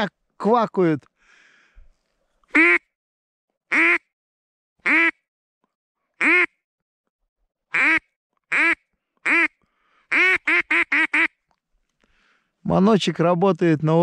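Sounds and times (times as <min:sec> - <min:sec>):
duck call quacks: 0:02.5 - 0:02.8, 0:03.7 - 0:04.0, 0:04.8 - 0:05.2, 0:06.2 - 0:06.5, 0:07.7 - 0:11.4.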